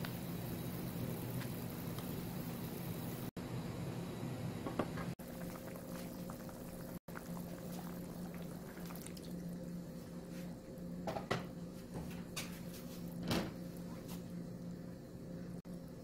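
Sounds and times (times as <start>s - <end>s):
sauce bubbling in frying pan: 0.0s - 3.3s, 5.2s - 9.8s
steady low hum: 0.0s - 16.0s.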